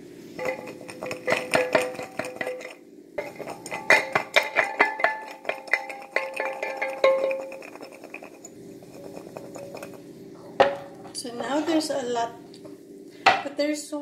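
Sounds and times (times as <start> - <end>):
garlic rattling in a glass jar: 0.4 - 10.0.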